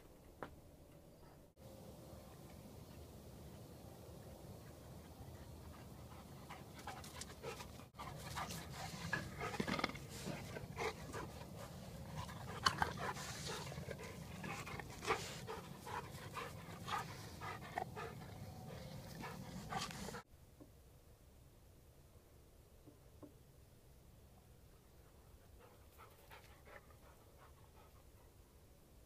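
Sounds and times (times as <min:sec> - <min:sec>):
dog panting: 0:04.2 - 0:20.2, 0:25.1 - 0:28.4.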